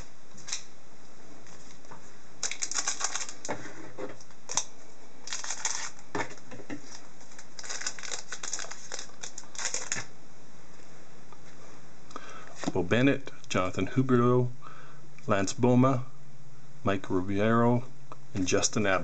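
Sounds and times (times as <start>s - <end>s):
wrapper crinkling and tearing: 2.4s - 3.5s, 4.5s - 6.0s, 6.8s - 10.1s.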